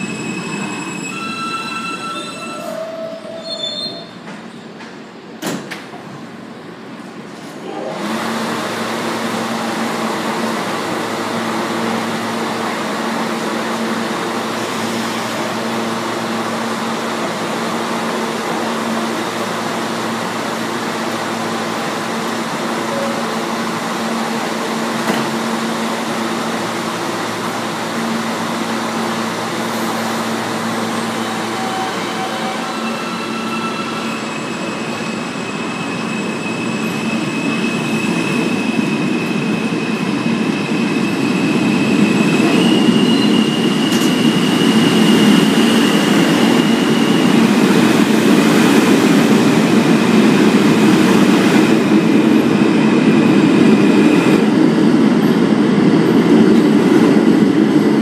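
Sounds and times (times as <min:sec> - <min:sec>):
train wheel and brake squeal: 0:00.0 - 0:04.9, 0:22.8 - 0:23.4, 0:30.8 - 0:47.8
standing train hum: 0:00.0 - 0:58.0.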